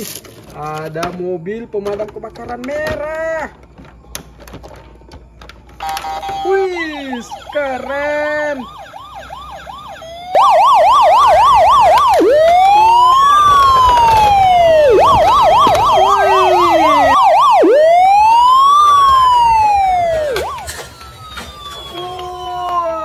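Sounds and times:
higher-pitched toy siren: 5.8 - 23.0
toy fire truck siren: 5.8 - 23.0.

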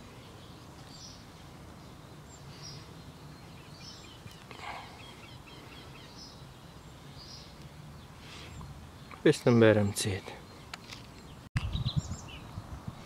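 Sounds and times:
small bird chirping: 10.2 - 12.6.

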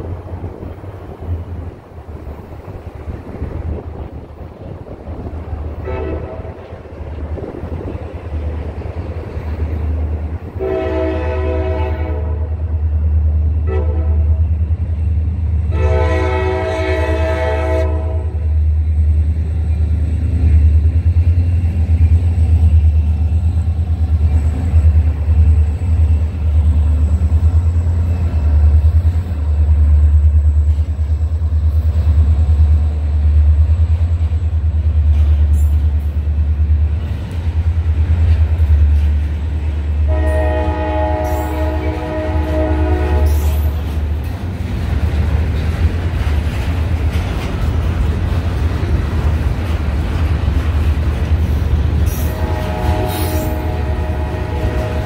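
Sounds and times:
diesel locomotive rumble: 0.0 - 55.0
locomotive air horn blasts: 5.8 - 6.6, 10.6 - 12.5, 13.6 - 14.4, 15.7 - 18.4, 40.1 - 43.5, 52.2 - 55.0
train wheels clicking: 17.9 - 55.0.

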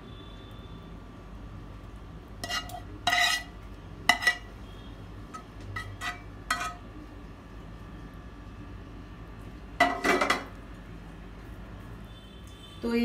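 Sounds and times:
metal spoon clinking on metal pan: 2.4 - 3.5, 4.1 - 4.5, 5.8 - 6.8.

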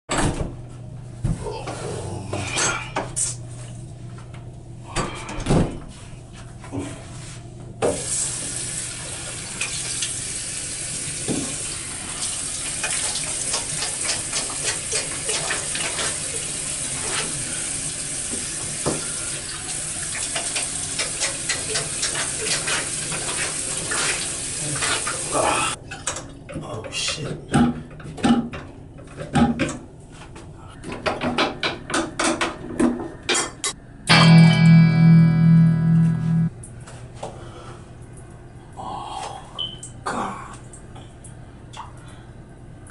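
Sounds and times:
water running from sink tap: 7.9 - 25.8
guitar music: 34.1 - 36.5.

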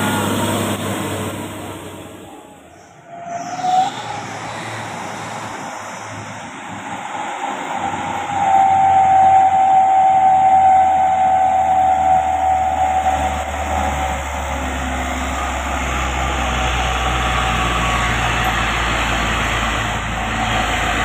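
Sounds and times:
truck engine rumble uphill: 0.0 - 21.0
high whistle-like tone: 2.0 - 16.2.

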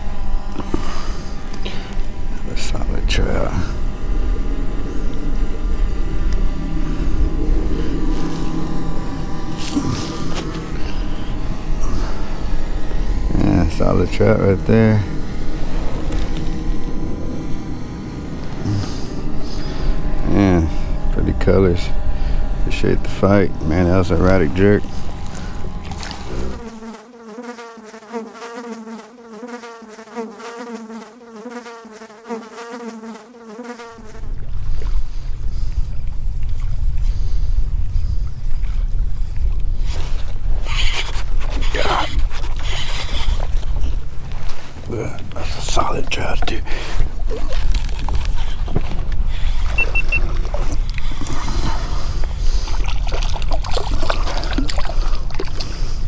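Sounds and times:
drone propellers buzzing whine: 0.0 - 56.0
wind buffeting microphone: 34.2 - 45.6
high beeps: 49.8 - 50.2.

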